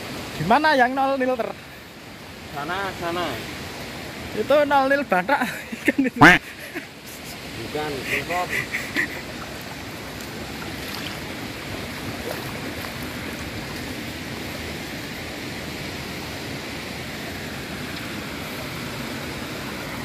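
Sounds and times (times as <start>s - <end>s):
river flowing over rocks: 6.2s - 20.0s.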